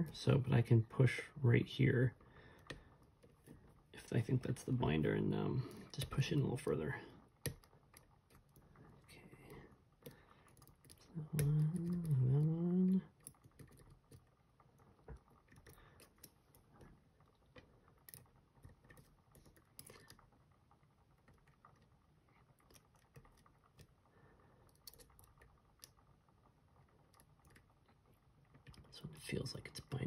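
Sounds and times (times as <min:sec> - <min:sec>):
lock pick clicks and scratches: 0:24.7 - 0:26.0.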